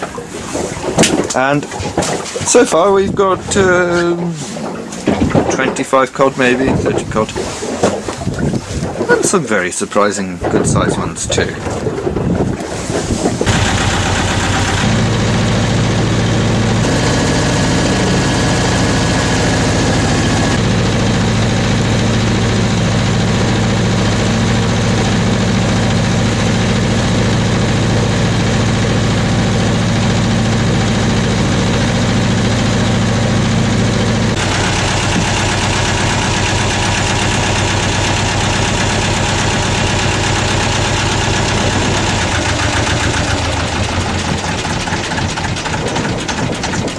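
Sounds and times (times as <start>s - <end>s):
boat engine running: 0.0s - 46.9s.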